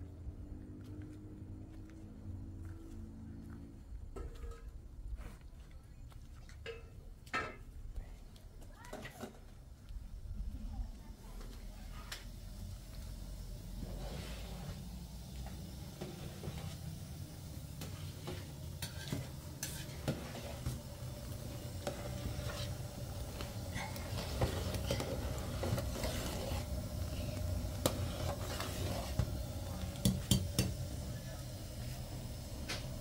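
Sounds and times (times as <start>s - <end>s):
gas burner rumble: 9.8s - 33.0s
metal spoon scraping a pot: 17.8s - 20.8s, 21.7s - 30.8s.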